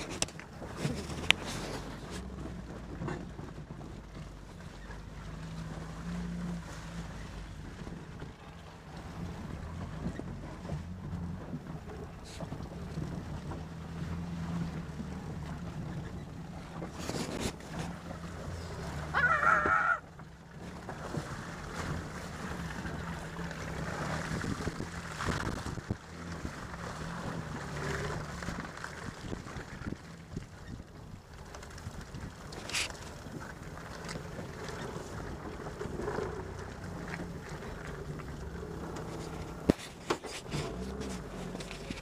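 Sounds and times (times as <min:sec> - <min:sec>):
vehicle knocks and rattles: 0:00.0 - 0:05.6
jeep engine running: 0:00.0 - 0:42.0.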